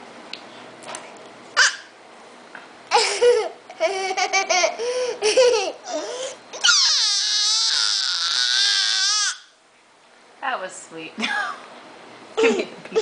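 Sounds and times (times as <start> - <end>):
toddler laughing: 2.9 - 9.4, 12.4 - 13.0
toddler squealing: 5.9 - 9.6.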